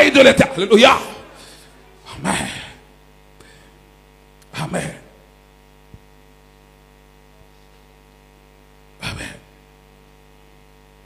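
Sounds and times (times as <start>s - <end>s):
man shouting into microphone: 0.0s - 1.4s
electrical mains hum: 0.0s - 11.0s.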